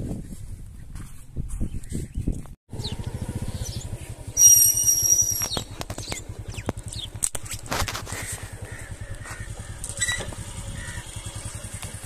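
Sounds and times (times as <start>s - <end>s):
motorcycle engine idling: 2.7s - 12.0s
shrill high-pitched tone: 4.4s - 5.6s.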